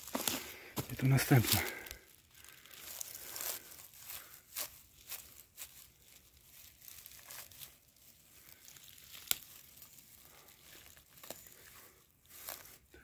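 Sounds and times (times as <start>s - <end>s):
dry leaf litter rustling: 0.0s - 13.0s
twig snapping: 8.8s - 9.8s.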